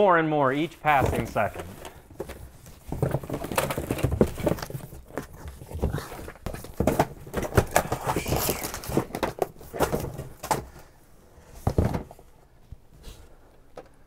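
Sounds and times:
rustling: 0.5 - 14.0
books and cases knocking: 0.9 - 10.8, 11.6 - 12.2.

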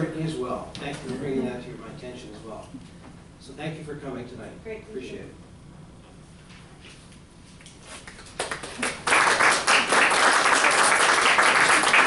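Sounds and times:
small group applauding: 8.0 - 12.0.

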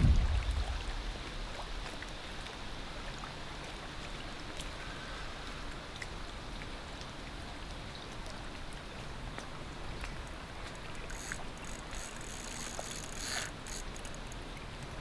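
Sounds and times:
wind buffeting microphone: 0.0 - 1.6
faint ticks: 4.5 - 15.0.

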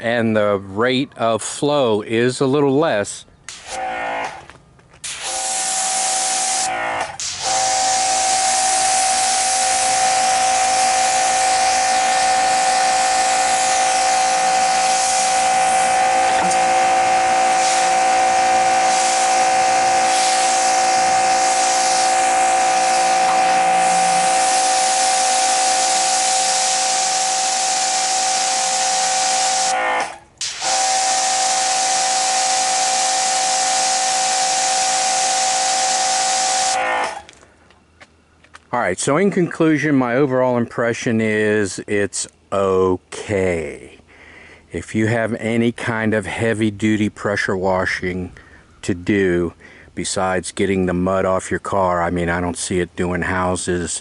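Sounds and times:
pressure washer motor whine: 3.6 - 37.4
water jet hissing: 5.0 - 29.8, 30.4 - 37.2.

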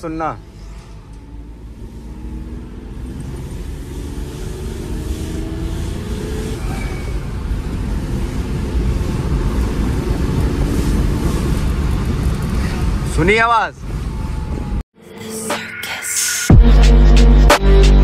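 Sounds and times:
car engine accelerating: 0.0 - 13.2.

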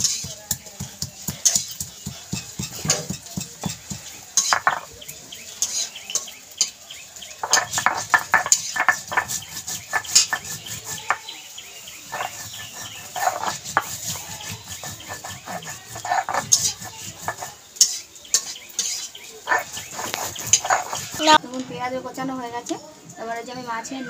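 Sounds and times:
stone grinding on stone: 1.4 - 5.0, 7.4 - 21.4.

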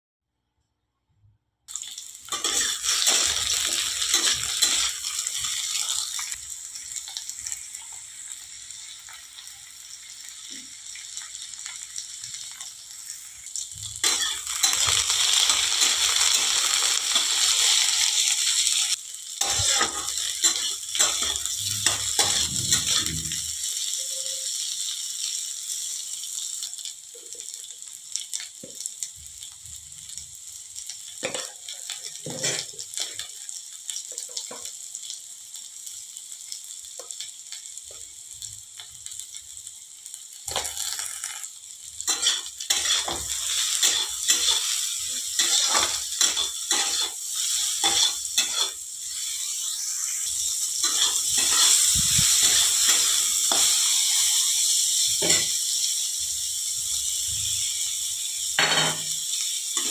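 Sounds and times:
vegetables sizzling in hot oil: 1.7 - 59.9.

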